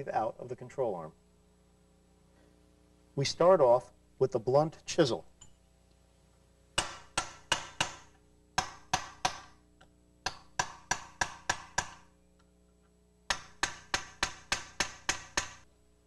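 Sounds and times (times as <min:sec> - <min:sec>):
hammer striking metal chisel: 0:06.8 - 0:12.2, 0:13.3 - 0:15.7.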